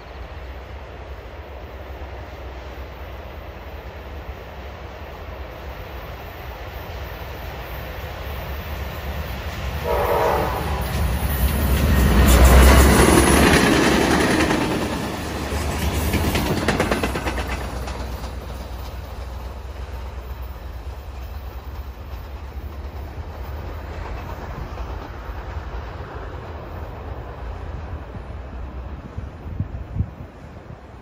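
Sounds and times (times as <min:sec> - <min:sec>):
train rumble: 0:00.0 - 0:31.0
train wheels clacking: 0:06.7 - 0:28.8.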